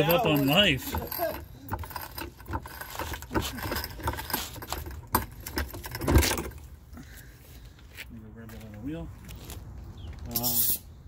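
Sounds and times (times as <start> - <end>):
floor jack clanking: 0.0 - 6.6.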